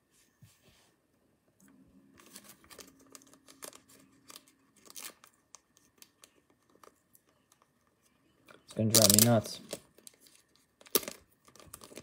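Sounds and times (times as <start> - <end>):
plastic card holder crinkling: 2.2 - 7.7.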